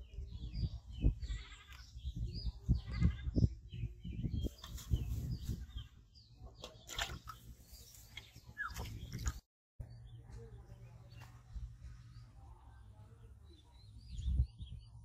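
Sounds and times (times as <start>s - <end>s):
animal bleating: 1.2s - 1.8s, 2.8s - 3.4s
rustling near microphone: 4.4s - 5.9s.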